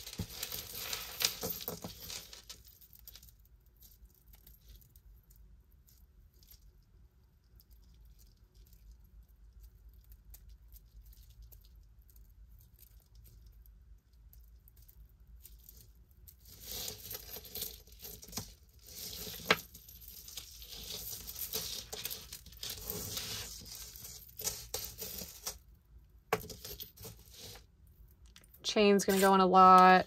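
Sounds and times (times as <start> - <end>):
jewelry chains clinking on tabletop: 0.0 - 6.7, 15.4 - 25.6, 26.3 - 27.7, 28.3 - 30.0.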